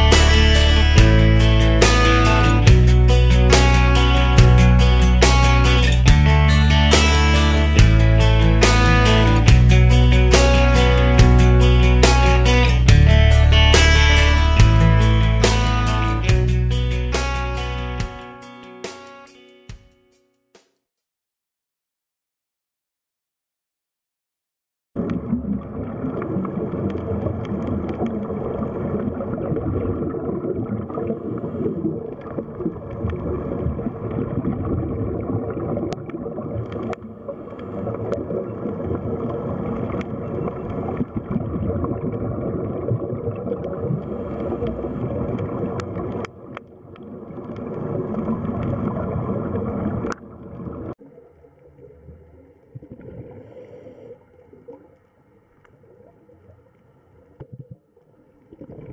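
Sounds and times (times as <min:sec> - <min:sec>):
underwater gurgling water: 0:25.0 - 0:58.9.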